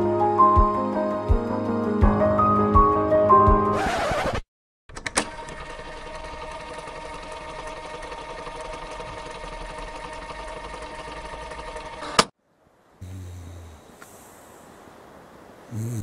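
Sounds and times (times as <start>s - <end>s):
small machine clattering: 5.0s - 12.3s.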